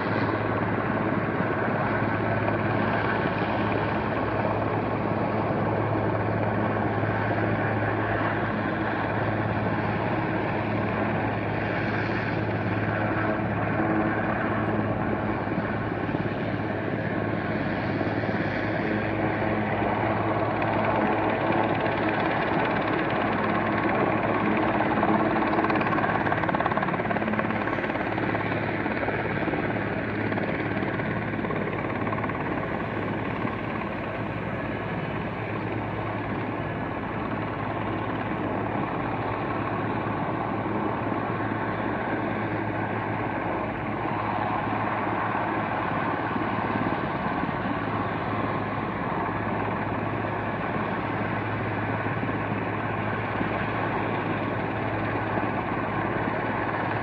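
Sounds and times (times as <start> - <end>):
helicopter hovering: 0.0 - 57.0.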